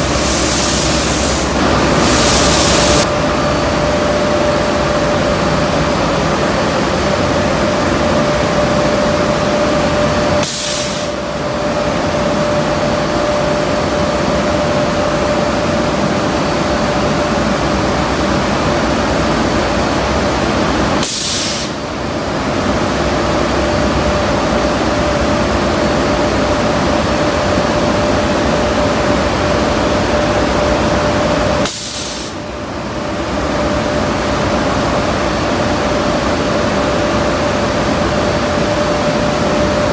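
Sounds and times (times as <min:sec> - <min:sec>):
sharp hiss of air: 0:00.0 - 0:03.0, 0:10.4 - 0:11.2, 0:21.0 - 0:21.8, 0:31.6 - 0:32.4
ventilation blower hum: 0:00.0 - 0:39.9.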